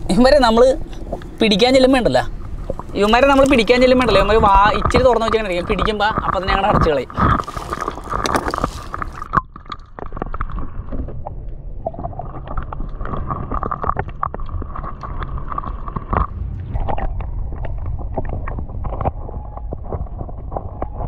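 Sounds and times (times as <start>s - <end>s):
faint steady hum: 0.0s - 21.0s
underwater rumbling and gurgling: 0.0s - 21.0s.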